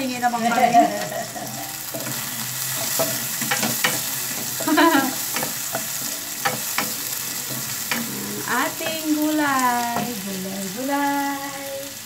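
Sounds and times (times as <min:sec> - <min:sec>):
onions sizzling in an oiled pan: 0:00.0 - 0:12.0
spatula knocking against a pan: 0:02.9 - 0:07.0.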